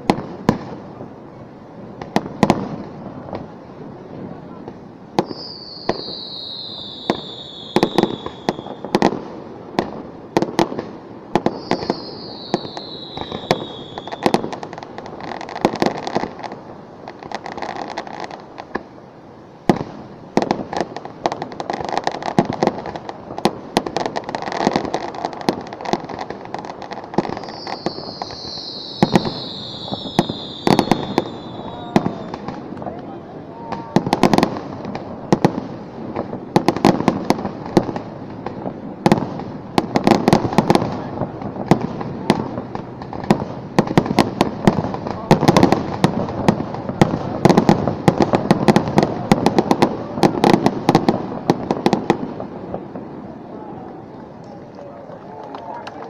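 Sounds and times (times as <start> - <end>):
fireworks bangs: 0.0 - 19.0, 19.6 - 54.4
fireworks crackling: 0.0 - 56.0
falling firework whistle: 5.2 - 9.2, 11.4 - 14.7, 27.1 - 32.7.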